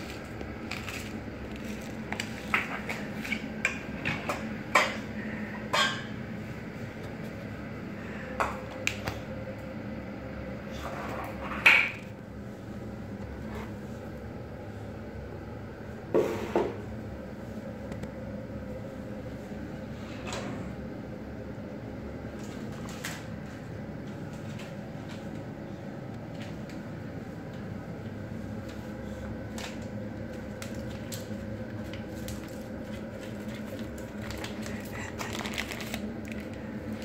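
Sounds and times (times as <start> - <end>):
steady background hum: 0.0 - 37.0
pots and utensils clanking: 2.4 - 6.2.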